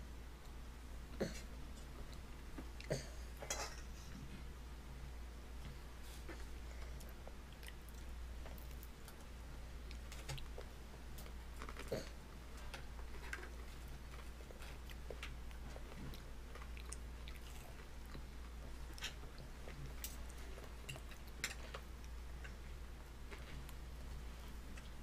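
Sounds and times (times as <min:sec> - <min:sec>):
steady low hum: 0:00.0 - 0:25.0
baby chewing and smacking: 0:06.2 - 0:22.6.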